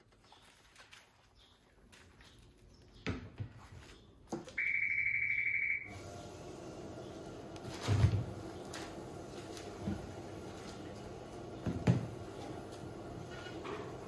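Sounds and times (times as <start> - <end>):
conveyor belt motor hum: 5.9 - 14.0.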